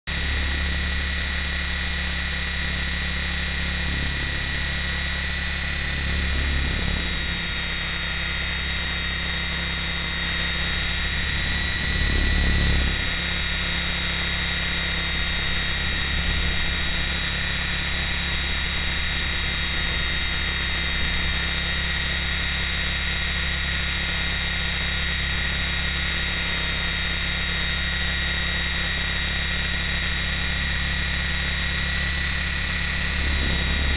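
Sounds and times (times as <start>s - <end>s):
low rotor hum: 0.0s - 33.9s
rc helicopter motor whine: 0.1s - 33.9s.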